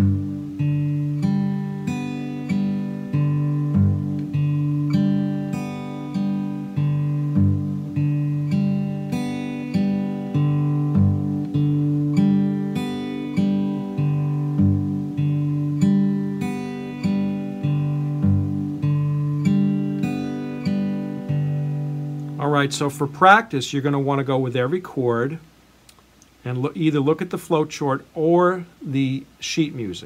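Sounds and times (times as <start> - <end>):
fingerpicked acoustic guitar: 0.0 - 23.5.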